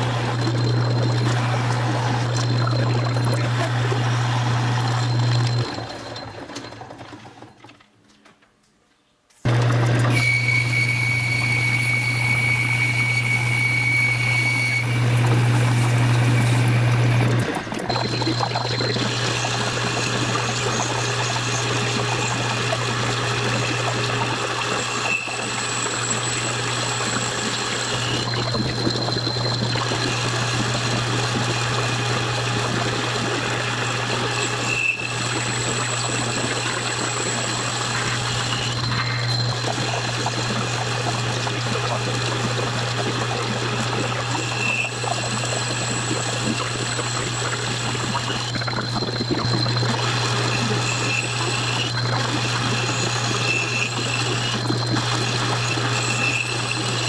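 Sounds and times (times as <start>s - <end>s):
lathe motor humming: 0.0s - 6.7s, 9.5s - 57.0s.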